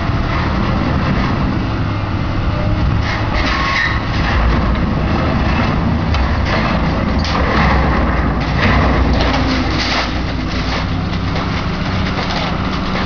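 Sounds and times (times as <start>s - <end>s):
excavator diesel engine rumbling: 0.0s - 13.0s
metallic clanks and creaks: 2.8s - 13.0s.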